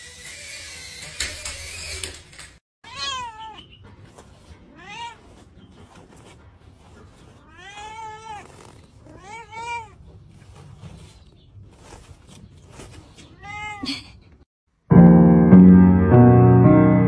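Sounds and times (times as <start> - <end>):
cat meowing: 2.8 - 3.8, 4.6 - 5.4, 7.4 - 10.1, 13.3 - 13.9
loud piano music: 14.8 - 17.0.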